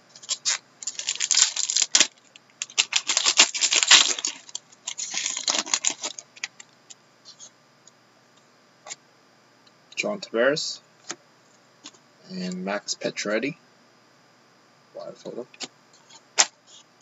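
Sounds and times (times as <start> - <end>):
foil wrapper crinkling and tearing: 0.2 - 6.6.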